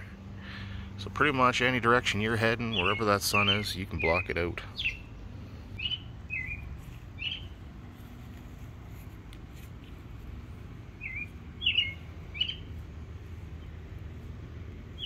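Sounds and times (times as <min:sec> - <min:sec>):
low background noise: 0:00.0 - 0:15.0
small birds chirping: 0:02.0 - 0:08.3, 0:09.8 - 0:15.0.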